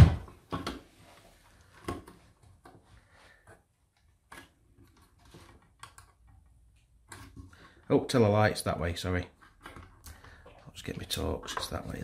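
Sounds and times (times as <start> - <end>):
fingers clicking plastic holders: 4.1 - 7.8.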